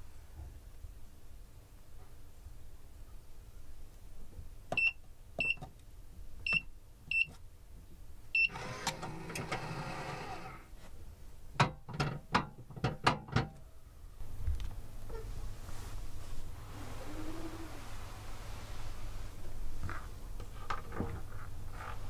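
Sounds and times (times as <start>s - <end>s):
keypad beeps: 4.8s - 5.6s
motorised bolt whirring: 8.5s - 10.6s.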